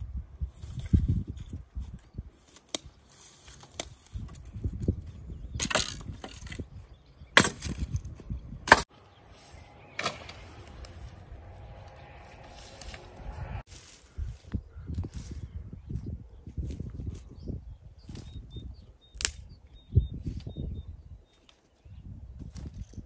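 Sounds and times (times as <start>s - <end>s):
dry branches snapping: 2.4s - 4.9s, 5.6s - 6.7s, 9.9s - 11.2s, 19.1s - 19.5s.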